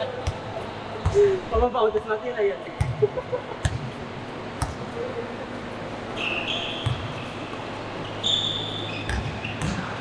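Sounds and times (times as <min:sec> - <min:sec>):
basketball bouncing on gym floor: 0:00.1 - 0:01.7, 0:02.8 - 0:04.9, 0:06.8 - 0:07.7, 0:08.9 - 0:10.0
sneaker squeaks: 0:06.0 - 0:10.0.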